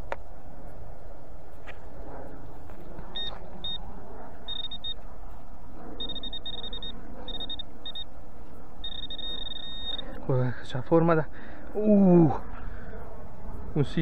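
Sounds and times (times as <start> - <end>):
metal detector beeping: 3.1 - 3.8, 4.5 - 5.0, 6.0 - 8.2, 8.8 - 10.2.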